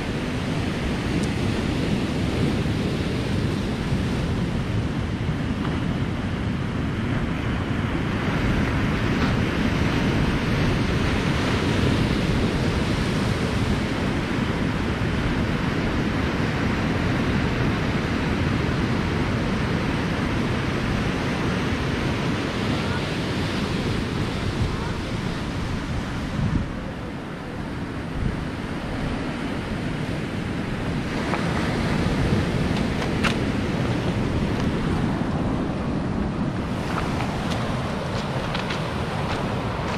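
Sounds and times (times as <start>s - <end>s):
wind rumbling on microphone: 0.0s - 39.9s
surf breaking on pebbly shore: 28.8s - 39.9s.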